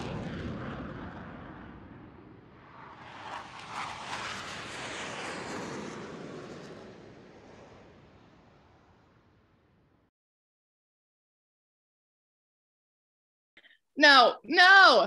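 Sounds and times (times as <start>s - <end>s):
jet engine rushing: 0.0s - 8.0s.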